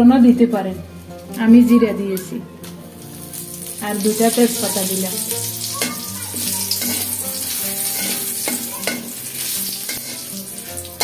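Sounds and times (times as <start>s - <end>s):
spices sizzling in hot oil: 2.8s - 11.0s
metal spatula scraping a pan: 3.2s - 11.0s.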